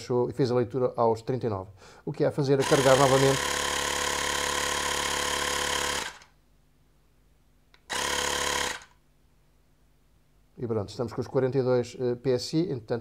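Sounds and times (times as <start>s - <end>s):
air pump compressor running: 2.6s - 6.2s, 7.9s - 8.9s.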